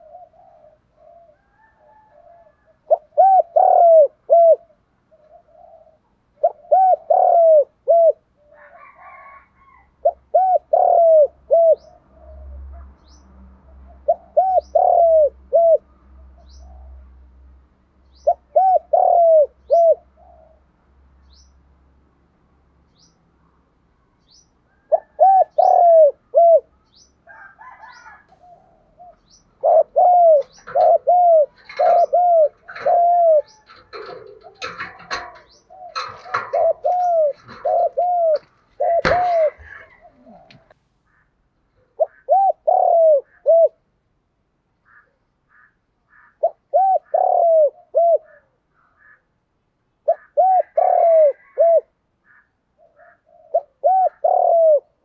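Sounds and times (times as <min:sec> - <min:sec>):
dove cooing: 0:00.0 - 0:12.6, 0:13.9 - 0:17.0, 0:18.2 - 0:20.7, 0:24.7 - 0:40.8, 0:42.0 - 0:43.8, 0:46.4 - 0:48.5, 0:50.1 - 0:51.9, 0:52.8 - 0:55.0.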